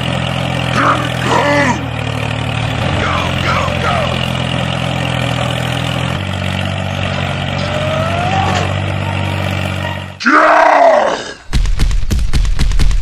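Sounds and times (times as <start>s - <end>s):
tractor engine running: 0.0s - 10.3s, 11.5s - 13.0s
loud groan: 0.7s - 2.0s, 2.8s - 4.3s, 7.6s - 9.0s, 10.2s - 11.5s.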